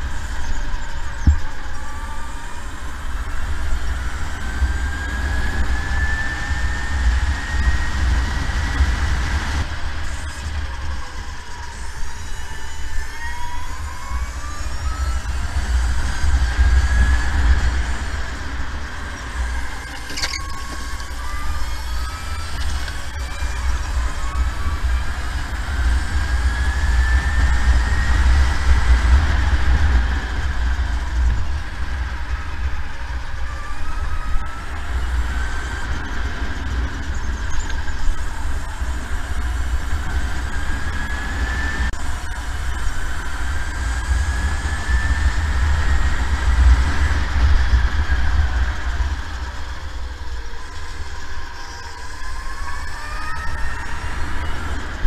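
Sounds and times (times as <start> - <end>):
electric go-kart motor whining: 0.0 - 55.0.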